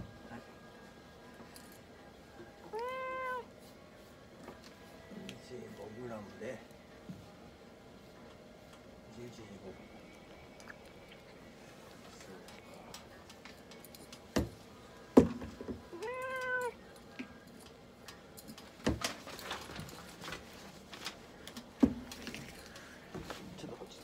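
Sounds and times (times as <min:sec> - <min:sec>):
cat meowing: 0:02.7 - 0:03.5, 0:15.9 - 0:16.8.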